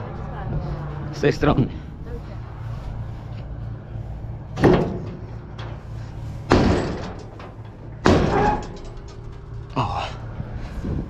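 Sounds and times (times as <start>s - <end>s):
engine idling: 0.0s - 11.0s
loud metallic bangs: 4.6s - 9.8s.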